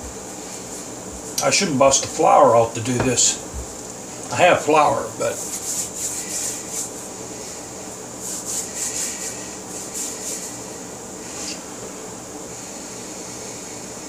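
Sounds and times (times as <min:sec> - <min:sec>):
hands rubbing dough: 0:03.0 - 0:11.6.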